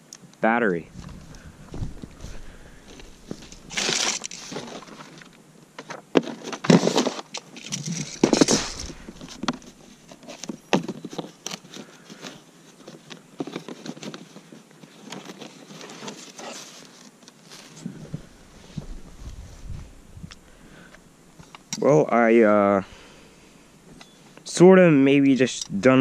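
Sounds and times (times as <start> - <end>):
foam and cardboard rustling: 0.9 - 21.5.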